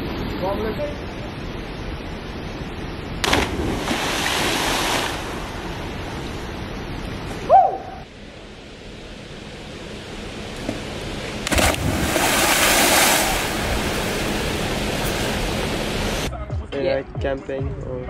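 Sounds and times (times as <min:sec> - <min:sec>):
steady rushing noise: 0:00.0 - 0:16.3.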